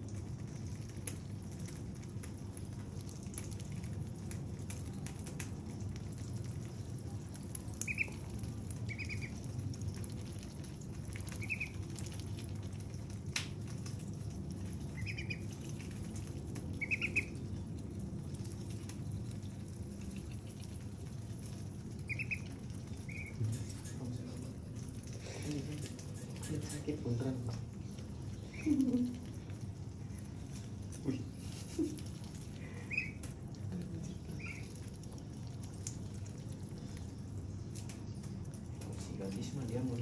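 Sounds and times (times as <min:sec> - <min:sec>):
steady low hum: 0:00.0 - 0:40.0
ducks peeping: 0:07.7 - 0:13.0, 0:14.7 - 0:17.8, 0:18.6 - 0:26.8, 0:28.0 - 0:29.3, 0:30.1 - 0:33.5, 0:34.2 - 0:37.8.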